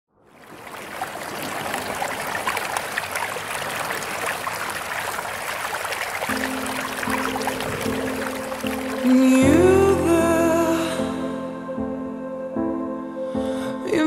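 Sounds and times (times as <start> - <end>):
fountain splashing into basin: 0.2 - 9.6
soft music: 6.3 - 14.0.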